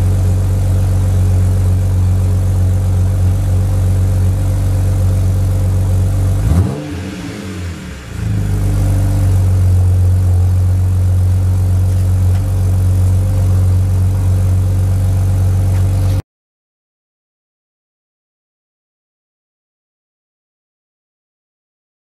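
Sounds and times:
car engine idling: 0.0 - 16.2.

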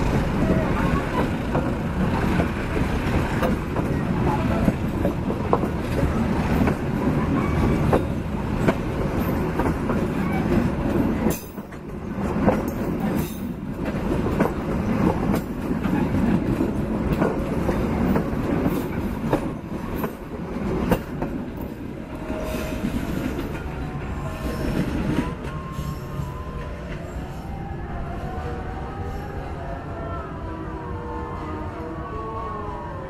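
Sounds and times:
train wheels clacking over rail joints: 0.0 - 22.0
train coaches rumbling past: 0.0 - 33.0.

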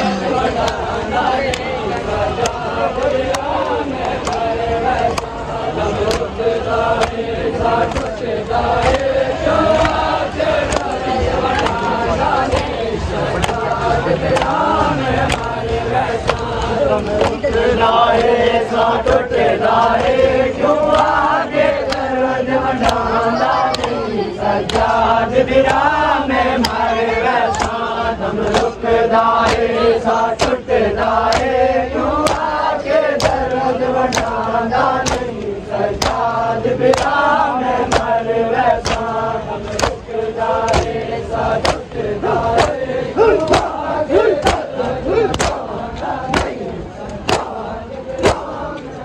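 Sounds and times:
men chanting in unison: 0.0 - 49.0
hands slapping chests: 3.3 - 5.3, 6.0 - 6.3, 7.0 - 7.2, 7.8 - 9.1, 9.7 - 11.9, 12.5 - 12.8, 13.4 - 14.6, 15.3 - 15.6, 16.2 - 17.4, 20.9 - 21.2, 21.8 - 22.1, 22.8 - 23.0, 24.6 - 25.0, 26.6 - 26.8, 27.5 - 27.8, 28.4 - 28.8, 29.4 - 29.7, 30.4 - 30.6, 31.2 - 31.5, 32.2 - 32.5, 33.2 - 33.5, 34.1 - 34.4, 35.0 - 36.2, 36.9 - 37.2, 37.9 - 38.1, 38.8 - 39.1, 39.7 - 40.0, 40.7 - 41.0, 41.6 - 41.8, 42.5 - 42.8, 43.4 - 43.8, 44.4 - 44.7, 45.3 - 45.7, 46.3 - 47.6, 48.2 - 48.5.

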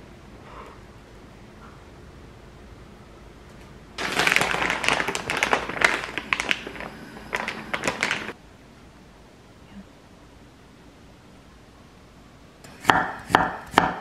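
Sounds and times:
plastic packaging crinkling: 4.0 - 8.4.

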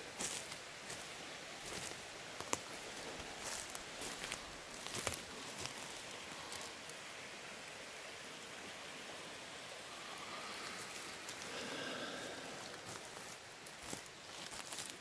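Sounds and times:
forest background hiss: 0.0 - 15.0
footsteps crunching on forest floor: 0.1 - 6.8, 10.7 - 15.0.

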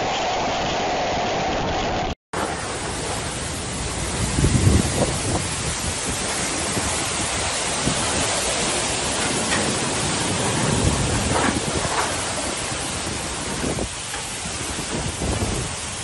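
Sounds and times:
strong wind and rain: 0.0 - 16.0
wind buffeting microphone: 1.5 - 16.0.

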